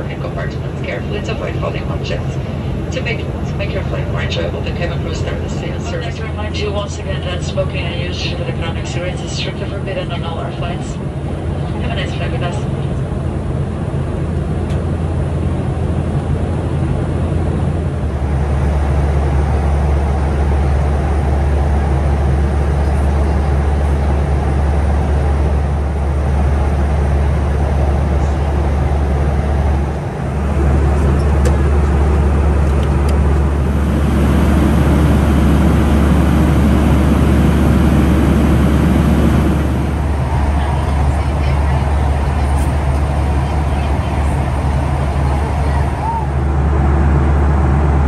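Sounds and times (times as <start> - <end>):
jet engine drone: 0.0 - 48.0
rush of air: 29.4 - 40.6.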